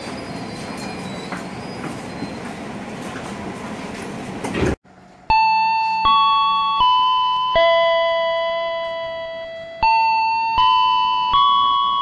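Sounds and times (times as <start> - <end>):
chime-like electronic notes: 5.3 - 12.0.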